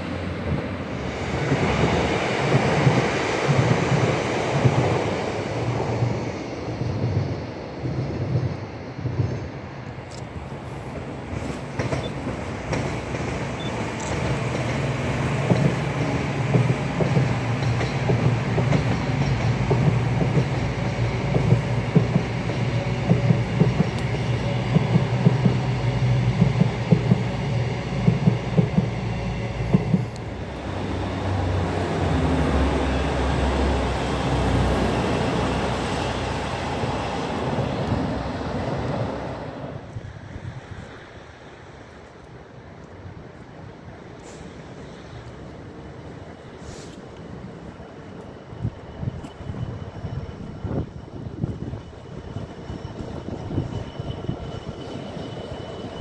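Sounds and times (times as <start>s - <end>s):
train low rumble: 0.0s - 56.0s
train wheels clattering: 11.0s - 39.1s.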